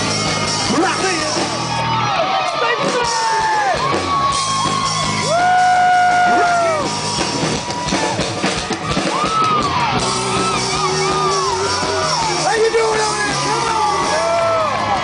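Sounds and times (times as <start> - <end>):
hard rock band playing: 0.0 - 15.0.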